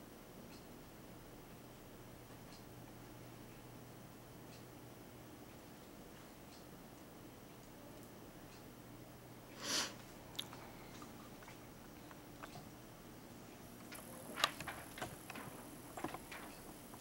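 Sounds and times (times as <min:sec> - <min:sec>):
faint high steady whine: 0:00.0 - 0:17.0
small clicks and taps: 0:13.8 - 0:17.0.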